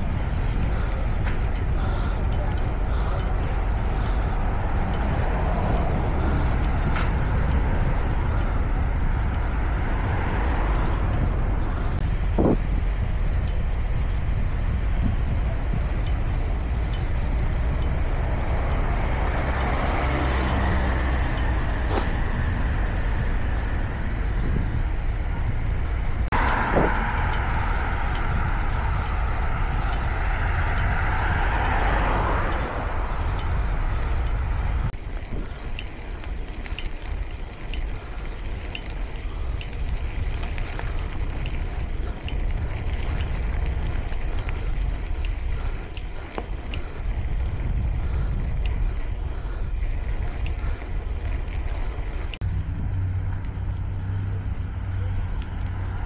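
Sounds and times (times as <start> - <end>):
bicycle tyre noise: 0.0 - 56.0
wind on camera microphone: 0.0 - 56.0
faint regular ticks: 27.2 - 56.0.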